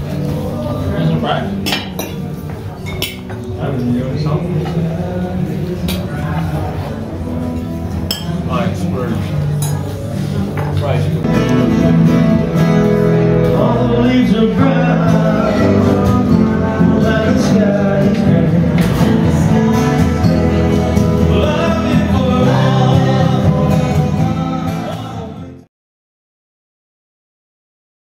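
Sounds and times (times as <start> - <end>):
man singing: 0.0 - 1.6, 3.5 - 7.4, 11.3 - 25.7
acoustic guitar: 0.0 - 25.7.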